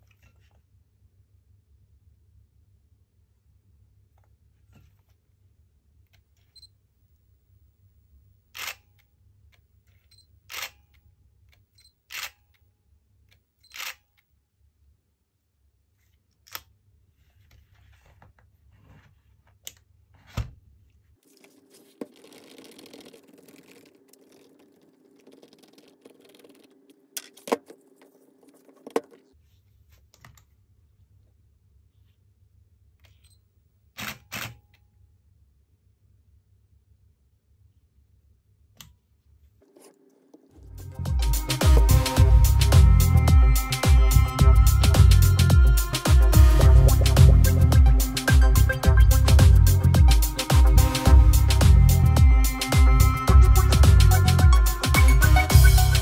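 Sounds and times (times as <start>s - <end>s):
camera shutter clacking: 8.6s - 8.9s, 12.1s - 12.4s.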